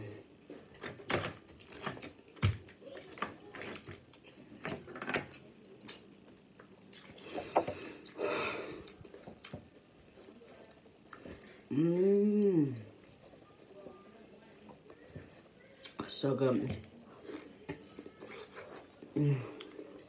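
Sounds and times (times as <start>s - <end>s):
chewing: 5.3s - 8.2s, 17.1s - 20.0s.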